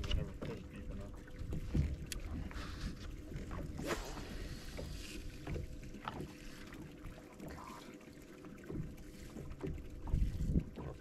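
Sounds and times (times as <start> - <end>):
water against boat hull: 0.0 - 11.0
wind rumble on microphone: 10.0 - 11.0.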